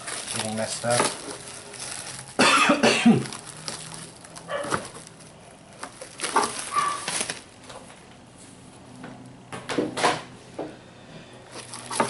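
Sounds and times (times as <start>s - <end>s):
cardboard and plastic wrap rustling: 0.0s - 8.6s, 11.4s - 12.0s.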